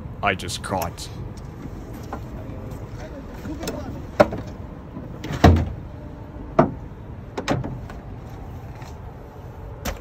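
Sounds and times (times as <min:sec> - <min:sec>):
knocks and thumps in boat cooler: 0:05.2 - 0:05.8.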